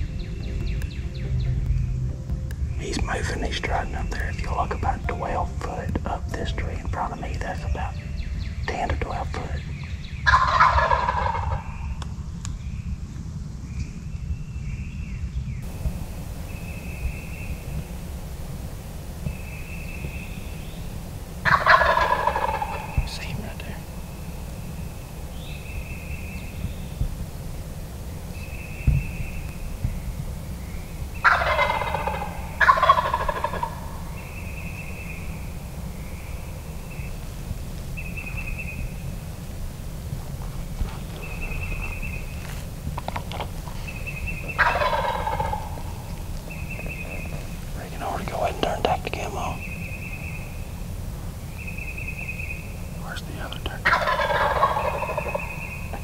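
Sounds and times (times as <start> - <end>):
turkey gobbling: 10.2 - 11.8, 21.4 - 23.1, 31.2 - 35.1, 41.2 - 47.4, 53.8 - 56.0.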